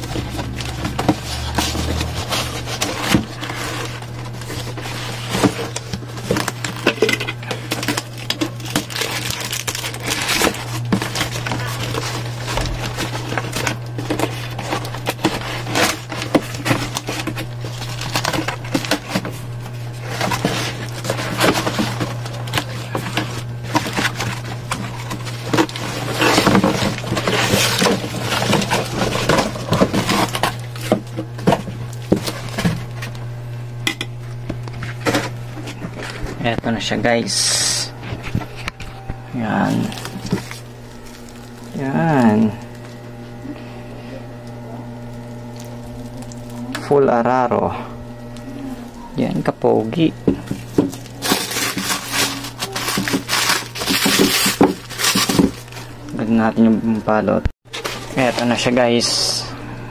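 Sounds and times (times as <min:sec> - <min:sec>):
cardboard box being pulled apart: 0:00.0 - 0:31.0, 0:50.6 - 0:55.9
packing tape ripping: 0:00.0 - 0:33.2, 0:39.5 - 0:43.0, 0:50.5 - 0:56.2
plastic wrap crinkling: 0:00.0 - 0:33.4, 0:34.4 - 0:43.7, 0:44.7 - 0:46.9, 0:48.2 - 0:57.0
steady low hum: 0:00.0 - 0:59.9.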